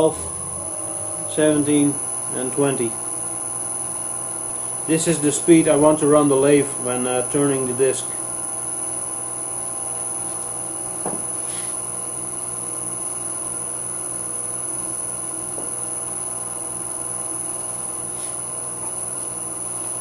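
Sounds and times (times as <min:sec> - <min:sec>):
electric motor humming and whining: 0:00.0 - 0:20.0
faint knock: 0:11.0 - 0:11.3.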